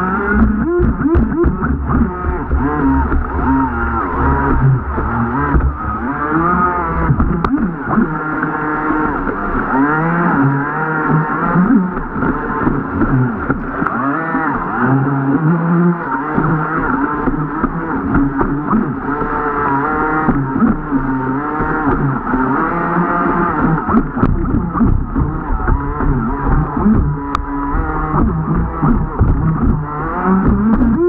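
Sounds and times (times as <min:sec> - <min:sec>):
model boat motor whining: 0:00.0 - 0:31.0.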